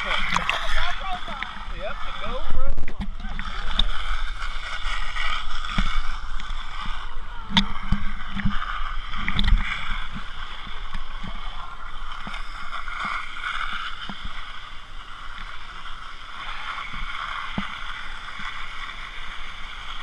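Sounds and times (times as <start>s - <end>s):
water sloshing and gurgling: 0.0s - 20.0s.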